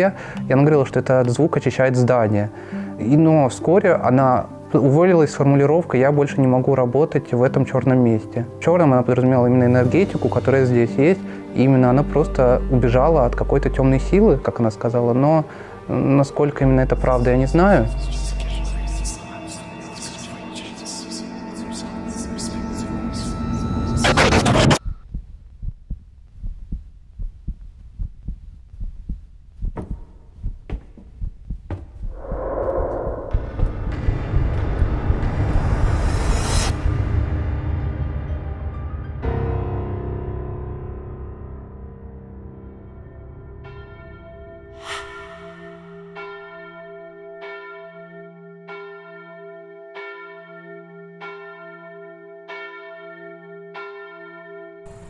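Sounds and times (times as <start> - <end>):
heartbeat thumps: 24.8 - 35.2
low hum: 31.2 - 36.1.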